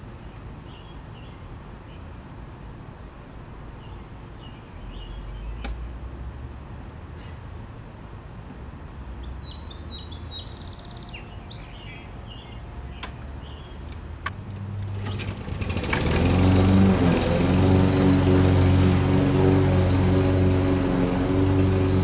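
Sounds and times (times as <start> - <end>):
birds chirping: 3.8 - 5.8, 9.1 - 22.0
lawn mower engine running: 12.3 - 22.0.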